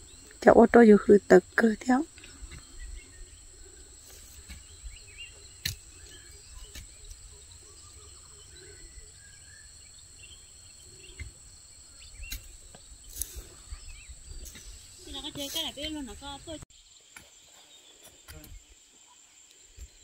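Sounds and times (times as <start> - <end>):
faint chirps: 0.0 - 20.0.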